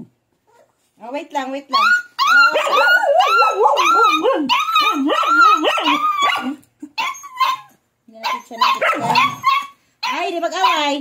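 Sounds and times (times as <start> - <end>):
puppy howling: 1.8 - 11.0
puppy short cry: 8.7 - 9.8.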